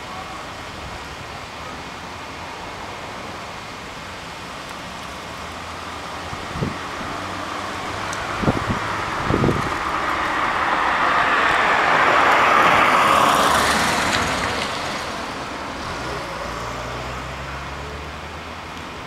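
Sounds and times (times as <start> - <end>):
road vehicle passing: 2.2 - 19.0.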